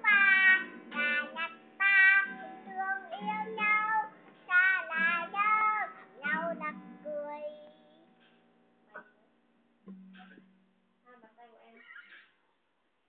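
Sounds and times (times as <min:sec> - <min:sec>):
young girl singing: 0:00.0 - 0:08.2
acoustic guitar strumming: 0:00.0 - 0:10.9.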